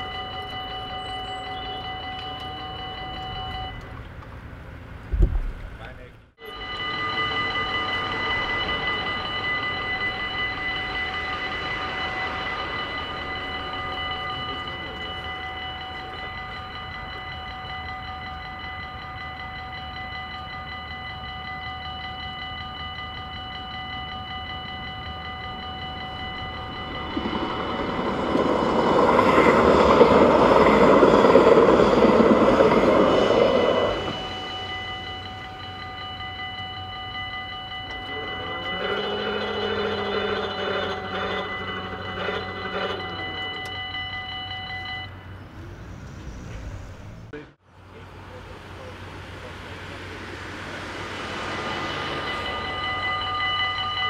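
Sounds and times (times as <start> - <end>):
level crossing bells ringing: 0.0 - 4.0, 6.4 - 45.6, 48.0 - 54.0
train passing: 0.0 - 54.0.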